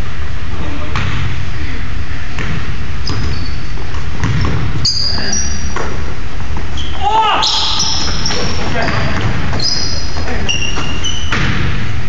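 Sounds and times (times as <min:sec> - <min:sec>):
basketball bouncing on hardwood: 0:02.4 - 0:05.0, 0:07.8 - 0:11.9
sneaker squeaks on floor: 0:03.0 - 0:05.9, 0:06.6 - 0:11.6.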